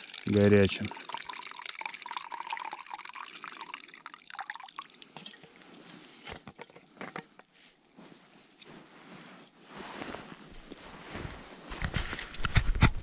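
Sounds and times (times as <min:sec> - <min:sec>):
drips: 0:00.0 - 0:05.6
tea pouring into cup: 0:00.0 - 0:05.6.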